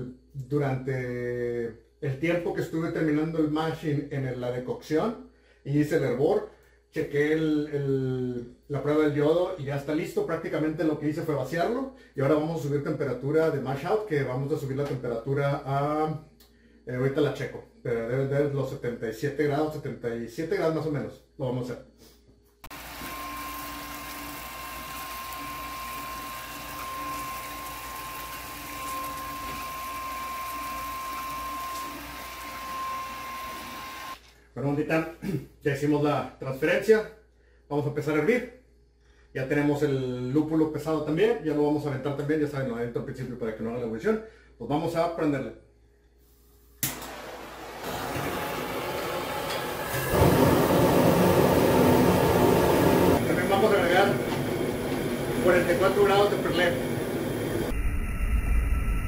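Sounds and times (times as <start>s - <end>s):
pump whining and humming: 22.7s - 34.2s, 46.8s - 57.8s
burner ignition click: 46.8s - 48.6s
gas burner flame roar: 46.8s - 57.7s.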